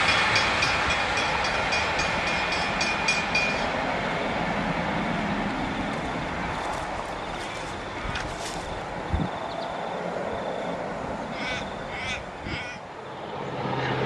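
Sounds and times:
train wheels ticking over rails: 0.0 - 9.0
diesel train engines: 0.0 - 14.0.

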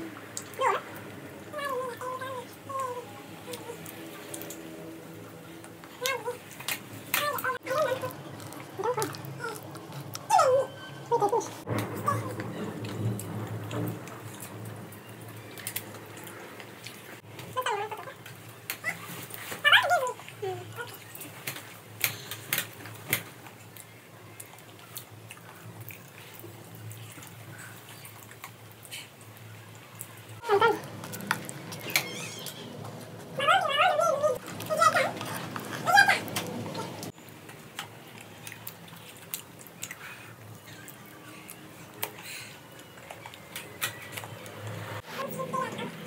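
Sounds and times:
person chewing food: 37.0 - 44.4.

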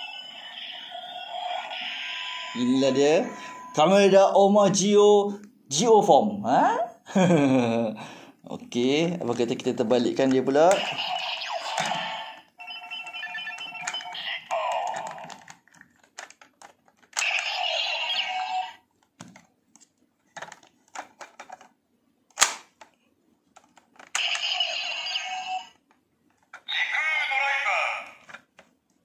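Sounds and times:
toy electronic sound effects: 0.0 - 3.8, 10.7 - 15.4, 17.2 - 18.8, 24.2 - 25.8
electronic beeps: 0.7 - 3.9, 10.8 - 14.6
plastic clicks: 13.5 - 17.4, 19.0 - 24.4
loud plastic snap: 22.3 - 22.9.

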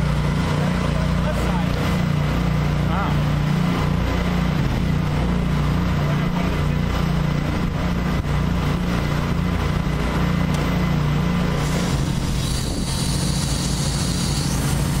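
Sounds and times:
pressure washer engine drone: 0.0 - 15.0
high-pressure water hissing: 11.4 - 15.0.

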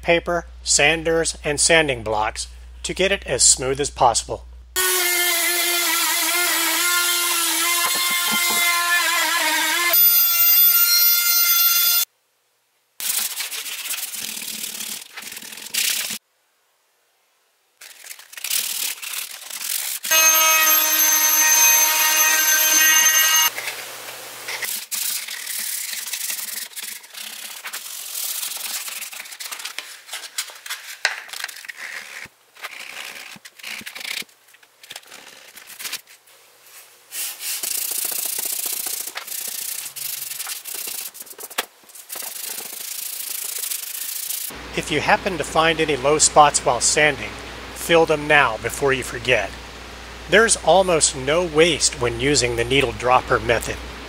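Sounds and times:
sandpaper rasping on plastic: 4.9 - 10.0, 13.0 - 16.2, 17.8 - 23.4, 24.6 - 34.3, 37.1 - 44.5
machine whine: 20.1 - 23.5.

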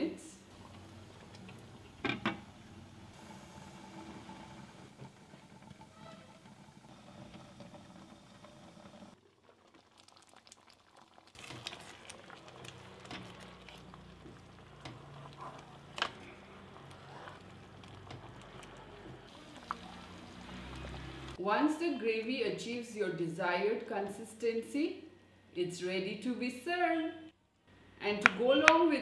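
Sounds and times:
gravy bubbling in a pan: 0.5 - 21.4.

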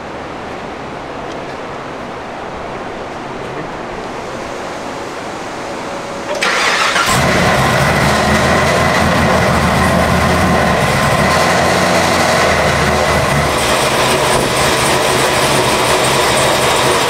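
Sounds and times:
supercharger whine: 6.2 - 17.0
car engine starting and idling: 6.3 - 17.0.

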